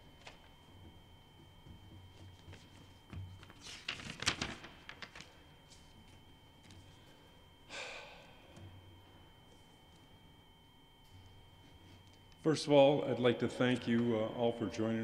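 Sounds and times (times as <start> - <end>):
faint high whine: 0.0 - 15.0
paper rustling: 2.2 - 6.8.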